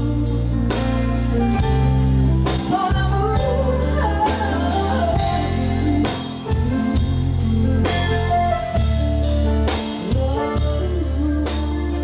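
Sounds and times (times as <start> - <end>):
song with singing and heavy bass: 0.0 - 12.0.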